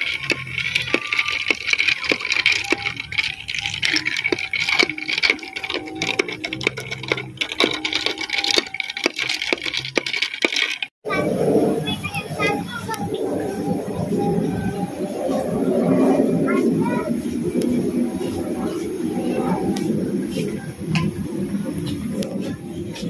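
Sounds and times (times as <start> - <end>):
spoon clinking ice in a glass: 0.0 - 10.9.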